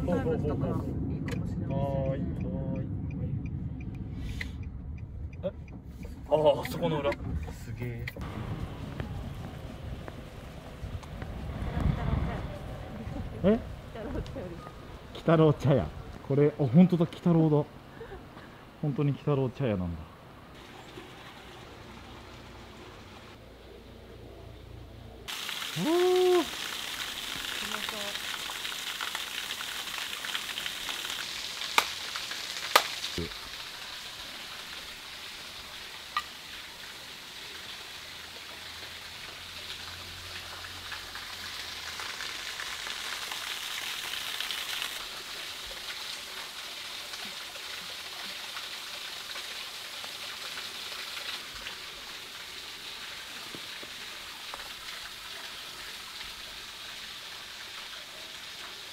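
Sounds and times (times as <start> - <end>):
hiss of rain or running water: 8.2 - 23.8, 24.4 - 58.9.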